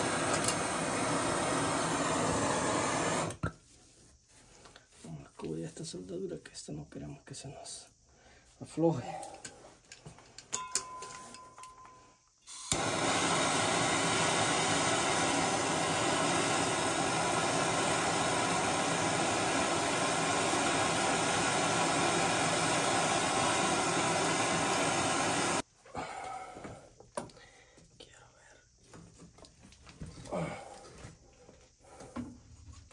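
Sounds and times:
gas torch hissing: 0.0s - 3.5s, 12.4s - 25.7s.

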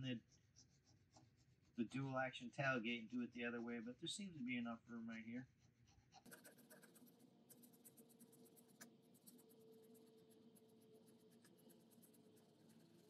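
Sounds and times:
pen tip scratching plastic: 6.2s - 13.0s.

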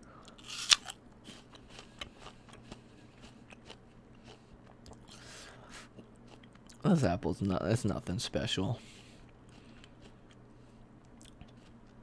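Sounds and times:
quiet chewing: 0.2s - 6.8s, 9.0s - 12.0s
apple bite crunch: 0.3s - 5.2s.

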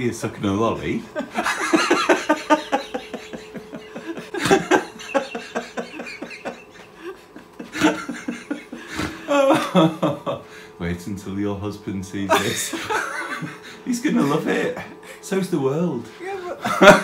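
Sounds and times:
woman laughing breathily: 1.2s - 10.6s.

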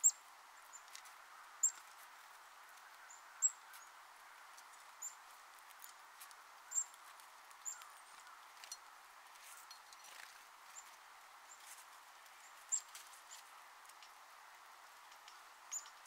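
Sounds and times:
songbirds high thin calls: 0.0s - 1.9s, 2.6s - 5.2s, 6.6s - 8.8s, 15.6s - 16.0s
faint steady hiss: 0.0s - 16.0s.

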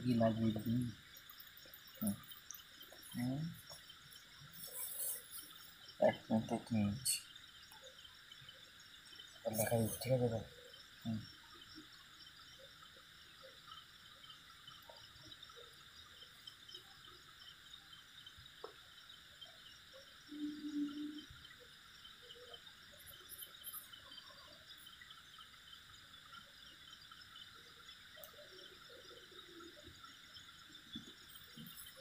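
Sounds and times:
crickets and insects chirring: 0.0s - 32.0s
brief low tone: 20.3s - 21.2s.

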